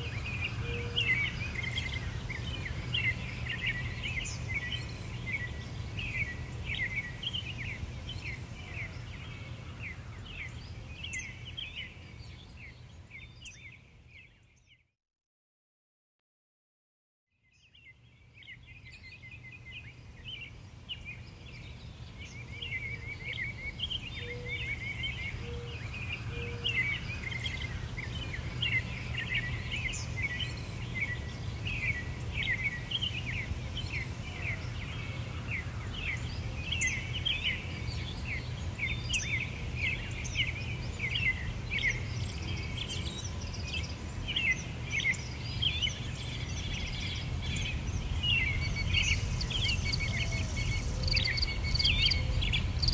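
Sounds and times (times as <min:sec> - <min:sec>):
small birds chirping: 0:00.0 - 0:14.8, 0:17.5 - 0:52.9
low outdoor rumble: 0:46.1 - 0:52.9.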